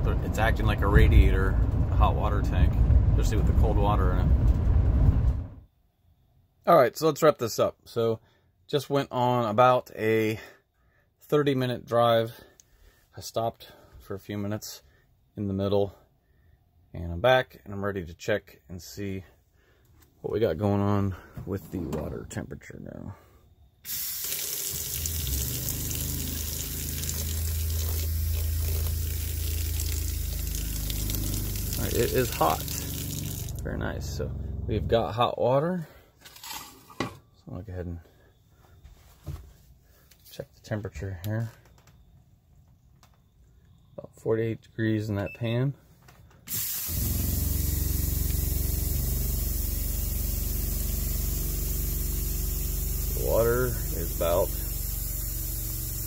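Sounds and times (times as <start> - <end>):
low steady hum: 0.0 - 5.7, 24.3 - 35.6
faucet water running into sink: 23.9 - 33.7.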